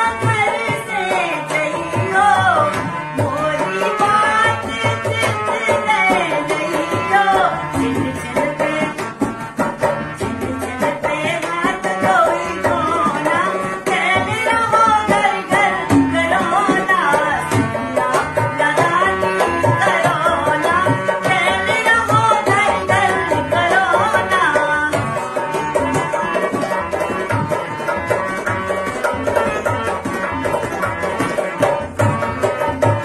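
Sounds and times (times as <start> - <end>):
woman singing folk song: 0.0 - 9.0, 10.4 - 25.0
hand drum rhythm: 0.0 - 33.0
harmonium: 0.0 - 33.0.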